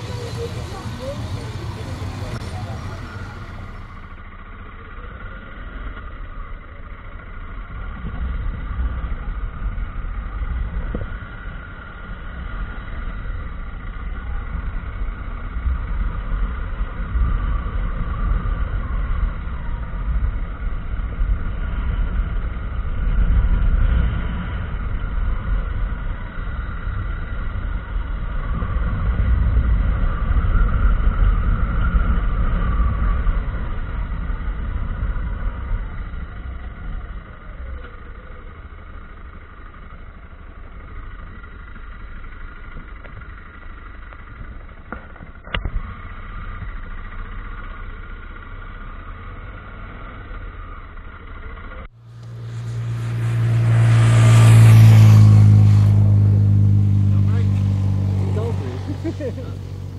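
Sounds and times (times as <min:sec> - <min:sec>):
wind rumble: 0:00.0 - 0:39.1, 0:51.8 - 0:59.9
motorcycle engine running: 0:00.0 - 0:59.9.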